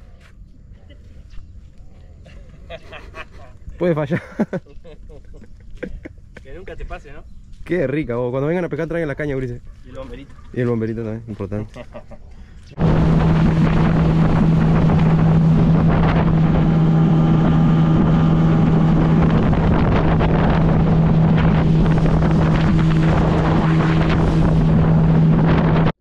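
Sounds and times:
outboard motor running: 0:12.7 - 0:25.9
wind buffeting microphone: 0:12.7 - 0:25.9.

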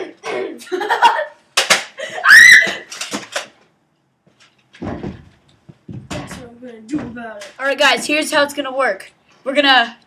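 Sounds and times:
children shouting and laughing: 0:02.0 - 0:02.9
high-pitched scream: 0:02.2 - 0:02.9.

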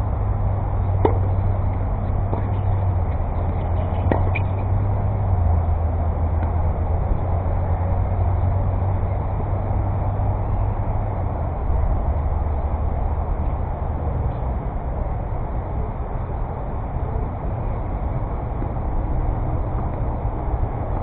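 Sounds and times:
tennis ball striking racket: 0:00.9 - 0:04.8.

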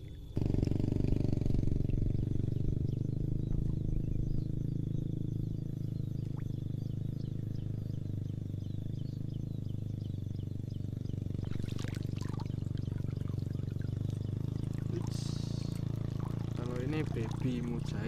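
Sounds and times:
steady low rumble: 0:00.0 - 0:18.0
faint high chirps: 0:01.8 - 0:18.0
fish splashing in water: 0:11.4 - 0:18.0.

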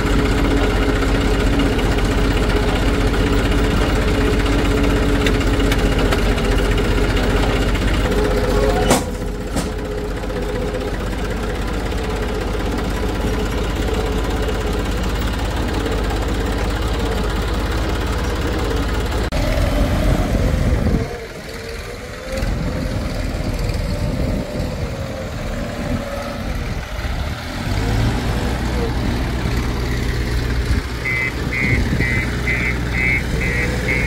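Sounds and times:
heavy diesel engine running: 0:00.0 - 0:34.0.

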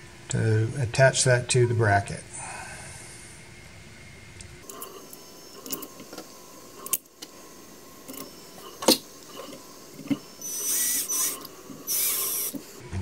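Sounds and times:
cordless drill driving bolt: 0:10.0 - 0:12.7.

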